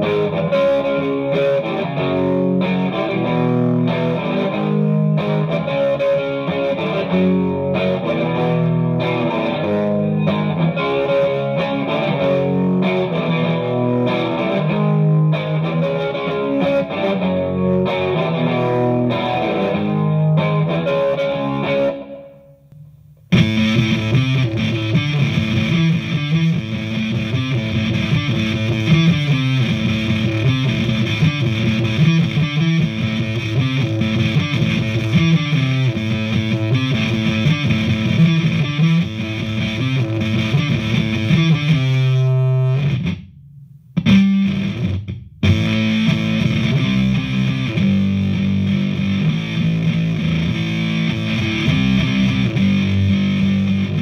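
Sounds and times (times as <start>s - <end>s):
distorted electric guitar riff: 0.0s - 54.0s.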